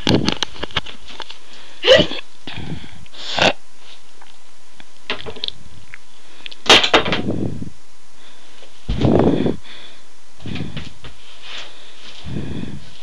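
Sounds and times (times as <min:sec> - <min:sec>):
breathy huffs: 0:09.2 - 0:11.0.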